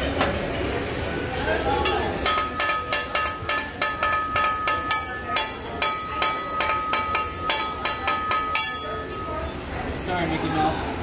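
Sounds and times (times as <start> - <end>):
metal spatula clinking on griddle: 1.8 - 9.6.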